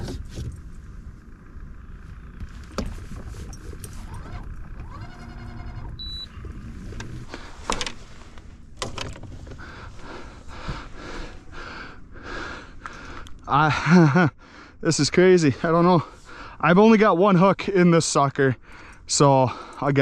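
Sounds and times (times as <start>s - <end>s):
repeating electronic pulses: 3.5s - 7.0s
short high beep: 6.0s - 6.3s.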